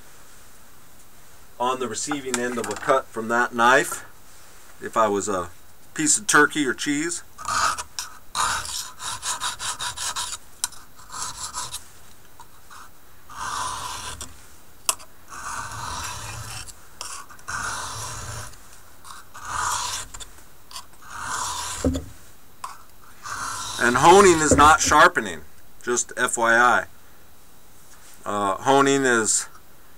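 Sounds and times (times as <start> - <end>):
knife scraping on honing stone: 7.5 - 11.8, 12.7 - 14.3, 14.9 - 25.2.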